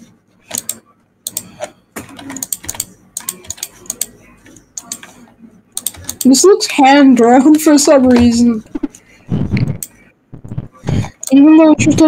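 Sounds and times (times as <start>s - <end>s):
computer keyboard typing: 0.5s - 5.2s, 5.8s - 6.4s, 9.6s - 11.4s.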